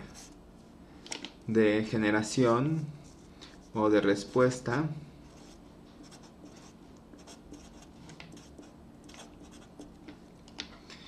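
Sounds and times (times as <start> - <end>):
marker scratching on paper: 5.3 - 9.9.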